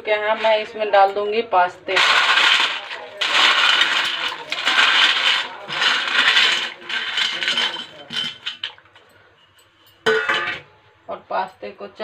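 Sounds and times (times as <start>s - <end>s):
dry pasta clattering into pot: 1.9s - 8.9s.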